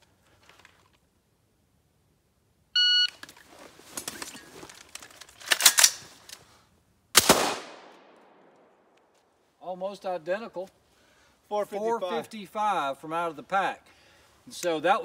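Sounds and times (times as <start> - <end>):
rifles rustling and clattering: 0.0 - 1.1, 3.1 - 6.6
rifle shot with echo: 7.2 - 9.0.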